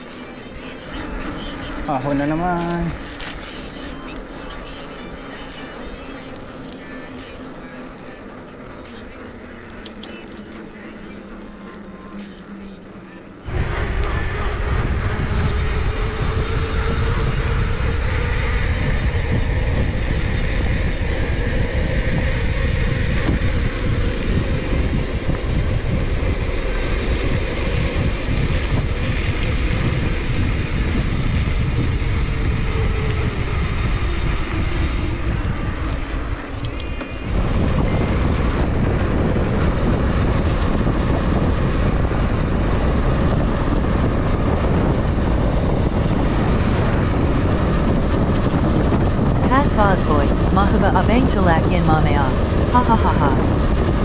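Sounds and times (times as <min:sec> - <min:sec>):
wind buffeting microphone: 0:13.5 - 0:54.0.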